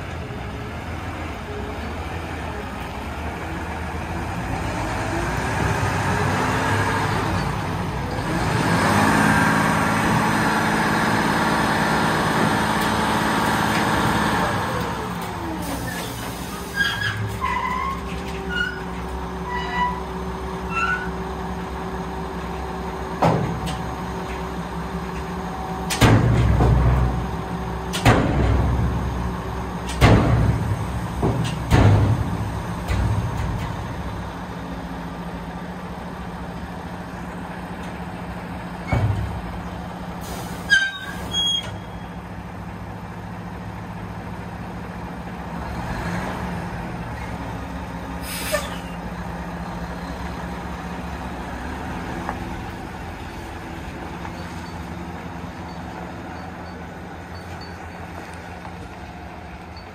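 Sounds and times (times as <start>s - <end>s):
diesel truck engine running: 0.0s - 59.9s
air brake hiss: 15.6s - 17.0s, 40.2s - 41.8s, 48.2s - 49.0s
heavy metal clunks: 25.8s - 27.3s, 27.9s - 29.1s, 29.8s - 33.9s.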